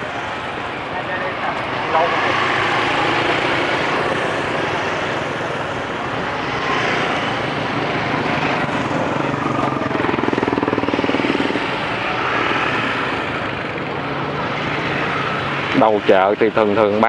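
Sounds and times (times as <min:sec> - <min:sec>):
motorbike engines in traffic: 0:00.0 - 0:17.0
motorbike passing close: 0:00.0 - 0:17.0.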